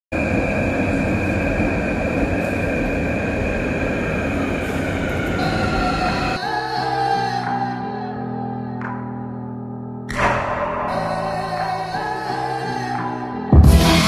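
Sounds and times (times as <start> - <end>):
metro train rumble: 0.1 - 7.0, 10.2 - 14.0
train high whine: 0.1 - 7.9, 10.1 - 14.0
music: 5.3 - 14.0.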